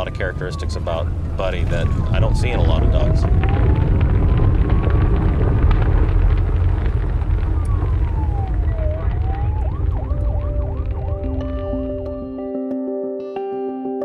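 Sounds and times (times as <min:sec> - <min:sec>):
police siren wailing and yelping: 0:00.0 - 0:05.9, 0:06.8 - 0:12.4
heavy low rumble: 0:00.0 - 0:12.4
music: 0:10.2 - 0:14.0.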